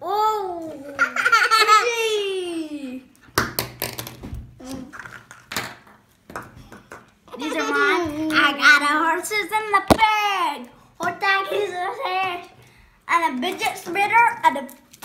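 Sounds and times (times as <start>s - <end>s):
plastic toys knocking on table: 3.4s - 4.4s, 5.0s - 7.1s.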